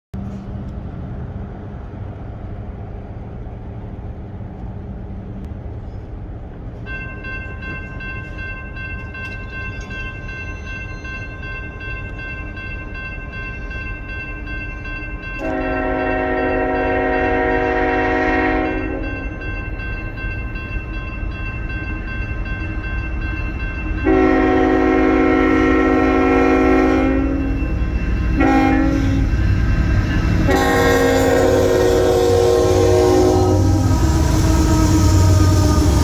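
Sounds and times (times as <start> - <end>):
crossing warning bell ringing: 6.6 - 36.0
locomotive horn: 15.4 - 19.2, 24.0 - 27.6, 28.4 - 29.4, 30.4 - 36.0.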